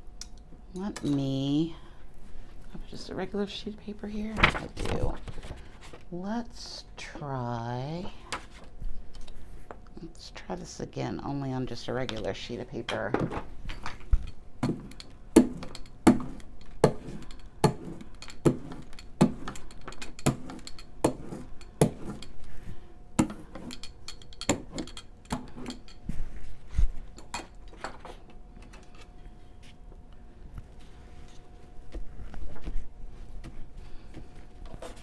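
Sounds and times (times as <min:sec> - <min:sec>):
faint steady hum: 0:00.0 - 0:35.0.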